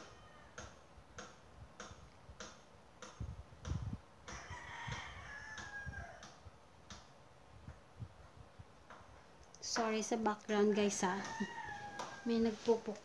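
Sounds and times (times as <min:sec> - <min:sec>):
rooster crowing: 0:00.0 - 0:00.8, 0:04.3 - 0:06.4, 0:10.8 - 0:12.6.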